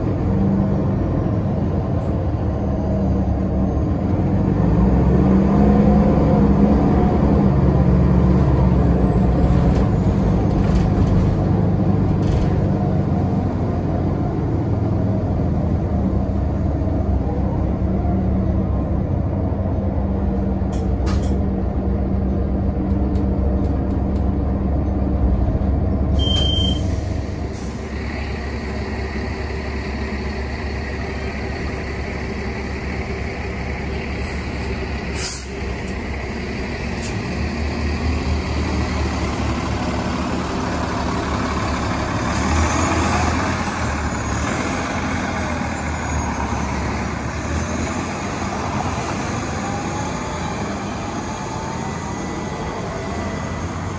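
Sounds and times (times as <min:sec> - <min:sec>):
bus diesel engine running: 0:00.0 - 0:53.9
bus idling: 0:00.0 - 0:53.9
short beep: 0:26.2 - 0:27.0.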